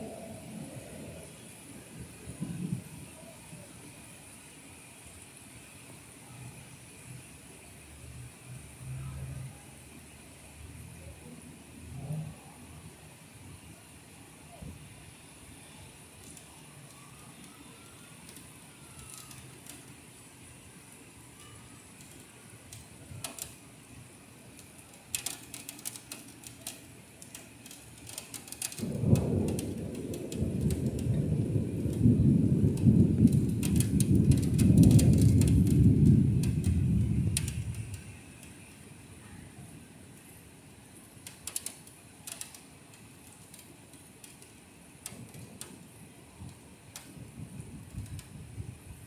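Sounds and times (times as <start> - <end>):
low rumble of thunder: 0.0 - 3.7, 28.1 - 38.2, 46.4 - 49.0
raindrops ticking on window ledge: 15.2 - 39.0, 41.0 - 49.0.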